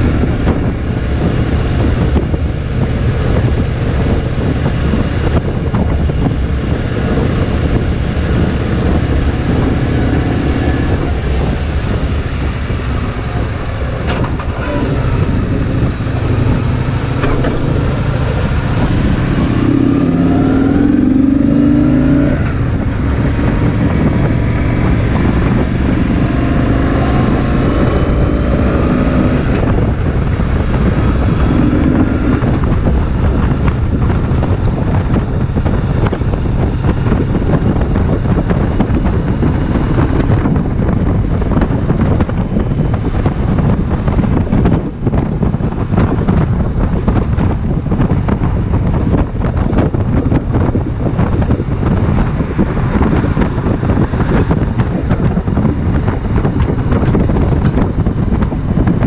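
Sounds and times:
motorcycle engine running: 0.0 - 59.0
wind rushing over microphone: 0.0 - 59.0.

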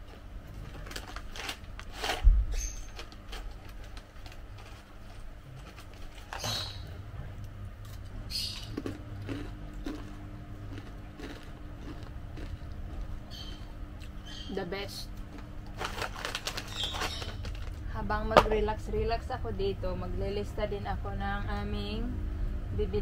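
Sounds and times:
plastic snack bag crinkling: 0.5 - 6.6, 8.8 - 13.4, 15.3 - 17.9
chips being crunched: 8.5 - 13.1, 15.2 - 17.8.

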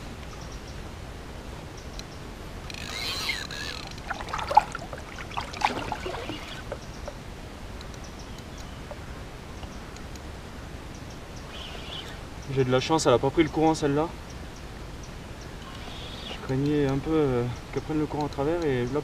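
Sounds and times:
outdoor background noise: 0.0 - 19.0
fishing reel clicks and squeaks: 2.7 - 4.0.

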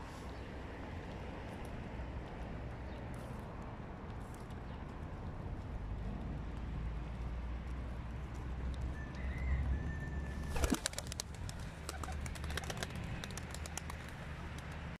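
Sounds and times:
pigeon wings flapping: 10.4 - 15.0.

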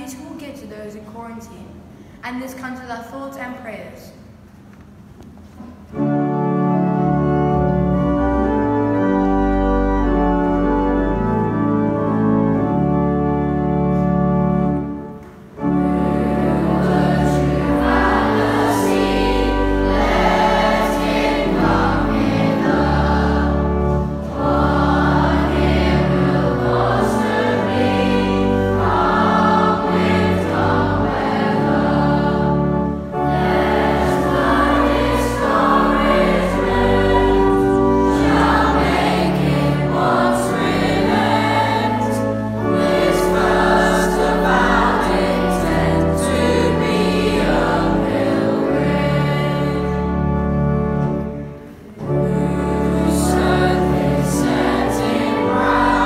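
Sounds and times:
organ playing chords: 5.4 - 56.0
boys' choir singing a hymn: 6.0 - 56.0.

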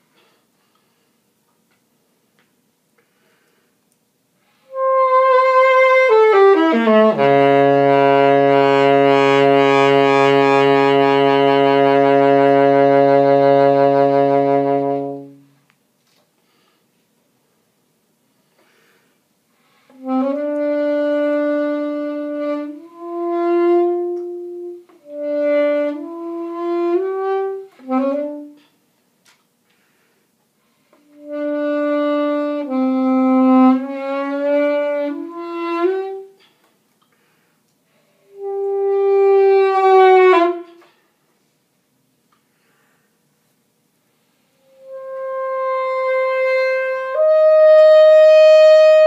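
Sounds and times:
alto saxophone playing slow phrases: 4.5 - 15.7, 19.6 - 28.8, 29.8 - 36.5, 37.2 - 41.2, 44.3 - 49.0.

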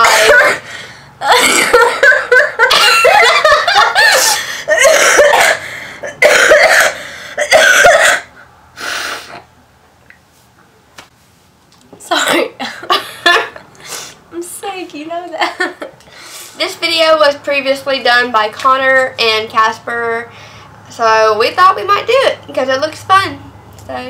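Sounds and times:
woman coughing: 0.0 - 3.4, 4.0 - 8.3, 12.1 - 13.6
woman laughing: 1.2 - 5.4, 12.6 - 13.6, 15.4 - 16.0.

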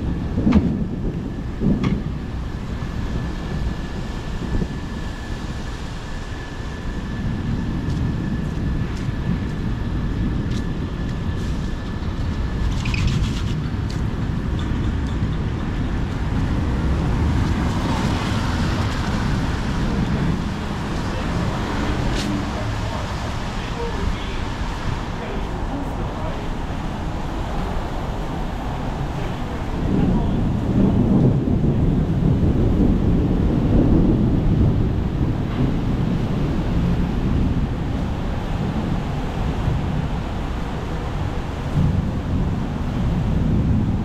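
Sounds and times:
thin steady whine: 0.0 - 43.5
road traffic rumble: 0.0 - 44.0.

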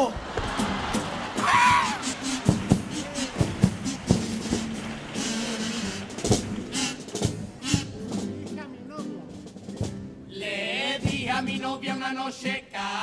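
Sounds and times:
guitar accompaniment: 0.4 - 12.1
male chorus singing: 10.3 - 13.0.

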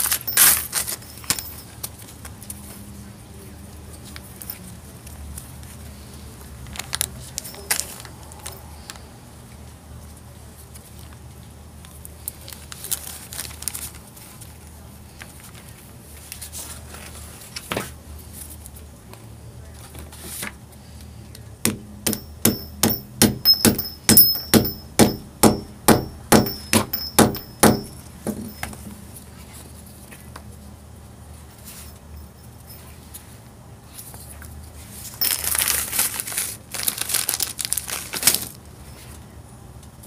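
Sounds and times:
hammer striking metal rivet: 21.7 - 28.7.

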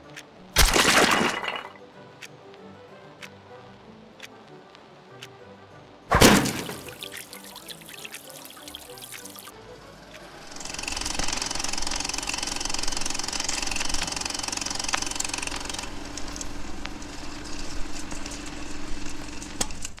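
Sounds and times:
sharp clicks: 10.1 - 17.0
film projector clattering: 10.1 - 20.0.

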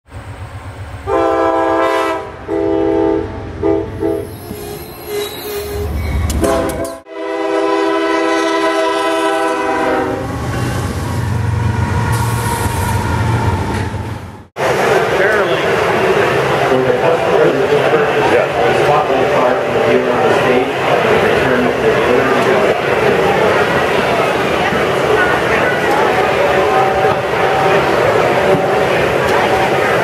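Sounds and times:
low rumble of passing train: 0.1 - 30.0
locomotive air horn blasts: 1.1 - 4.3, 6.4 - 10.4.

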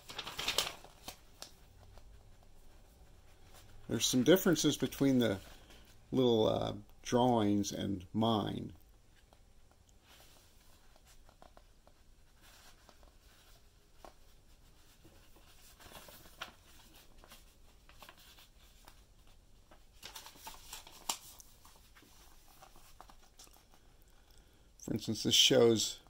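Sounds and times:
paper pages rustling: 0.0 - 6.0, 10.0 - 23.9.

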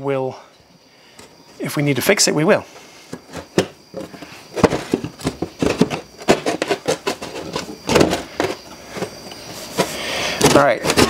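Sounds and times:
metal box scraping against drywall: 3.2 - 11.0.

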